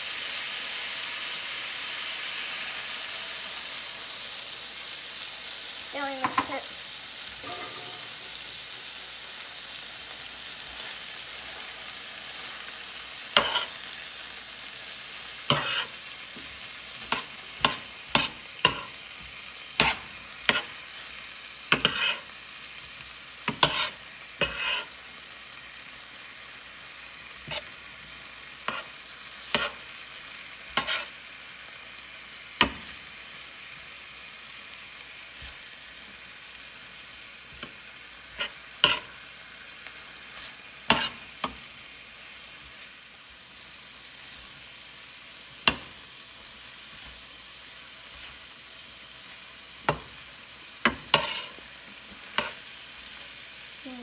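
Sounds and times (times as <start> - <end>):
food sizzling in a pan: 0.0 - 54.0
metal spatula scraping pan: 7.4 - 8.6, 13.4 - 13.8, 15.5 - 16.0, 21.7 - 22.3, 23.5 - 25.0, 27.4 - 27.8, 30.7 - 31.2, 37.5 - 39.2, 40.3 - 41.6, 50.9 - 51.6.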